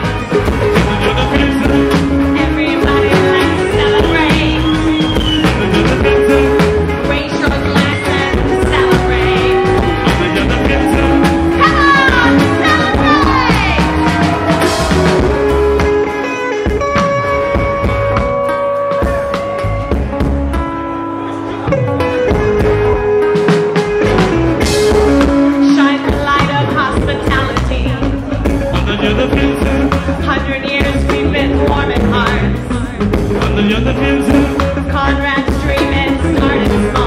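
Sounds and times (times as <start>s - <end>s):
live rock band playing: 0.0s - 37.0s
woman singing: 1.0s - 14.2s, 25.5s - 28.2s, 30.2s - 32.7s, 34.8s - 37.0s.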